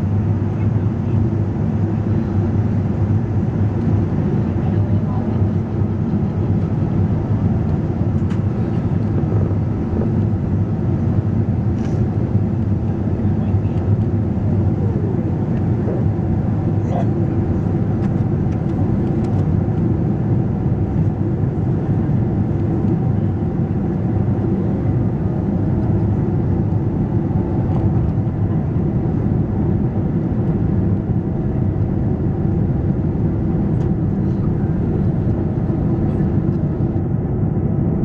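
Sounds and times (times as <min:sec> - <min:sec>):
airflow past the wing: 0:00.0 - 0:38.0
jet engines rumbling: 0:00.0 - 0:38.0.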